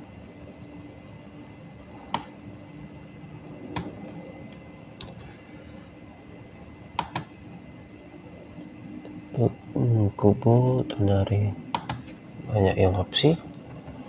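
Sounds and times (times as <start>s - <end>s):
faint room hum: 0.0s - 14.0s.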